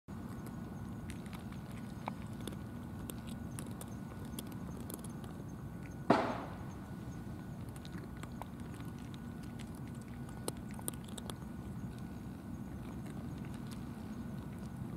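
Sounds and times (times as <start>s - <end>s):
cats crunching dry kibble: 0.1s - 6.1s, 6.8s - 14.9s
low background noise: 0.1s - 14.9s
sharp thump: 6.1s - 6.7s.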